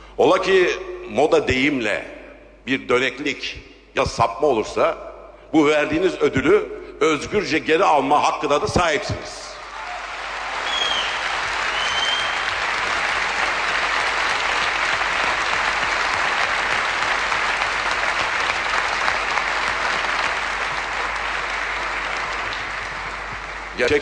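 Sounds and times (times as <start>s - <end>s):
large audience applauding: 9.6s - 24.0s
short high whistles: 10.6s - 12.5s.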